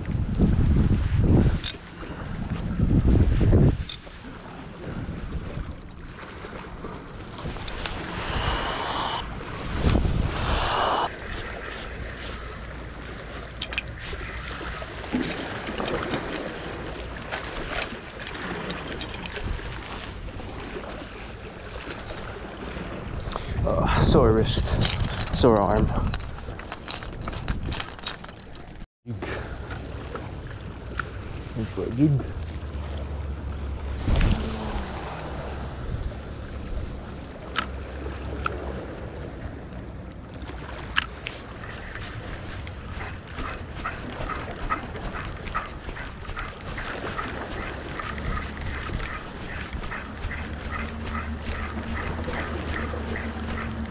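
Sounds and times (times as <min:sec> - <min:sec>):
wind buffeting microphone: 0:00.0 - 0:12.6, 0:18.4 - 0:28.1, 0:30.3 - 0:40.0, 0:40.6 - 0:53.9
sea surf: 0:00.0 - 0:24.5, 0:29.1 - 0:53.9
fishing line hissing out: 0:07.6 - 0:11.2, 0:34.1 - 0:37.1
small waves washing against rocks: 0:40.4 - 0:53.9.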